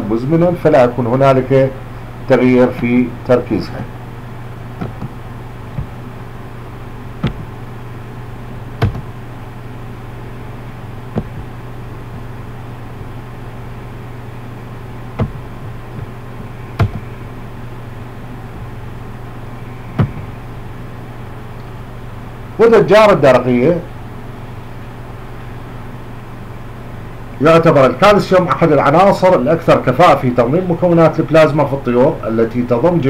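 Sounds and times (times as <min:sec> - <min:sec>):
low electrical hum: 0:00.0 - 0:33.0
sharp clicks: 0:16.8 - 0:17.1.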